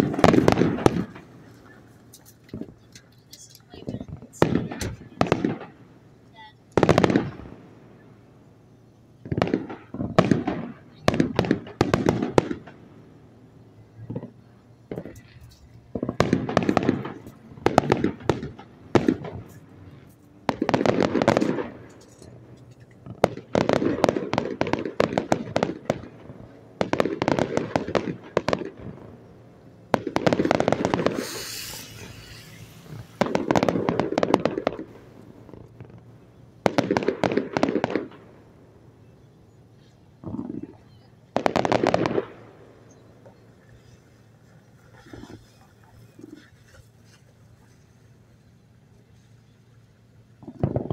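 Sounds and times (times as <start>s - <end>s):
fireworks bangs and crackling: 0.0s - 8.4s, 9.2s - 47.0s, 50.4s - 50.9s
high hiss: 30.9s - 33.7s.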